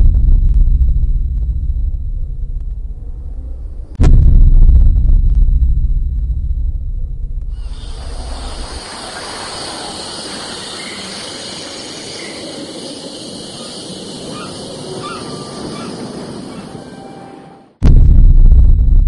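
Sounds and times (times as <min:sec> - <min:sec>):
even rushing noise: 0:07.5 - 0:17.8
faint high chirps: 0:07.6 - 0:17.2.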